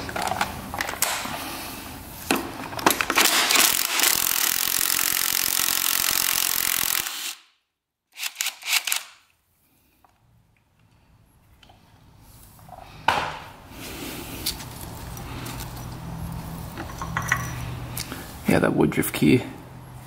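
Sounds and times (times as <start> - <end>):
handheld power tool running: 3.2 - 7.4.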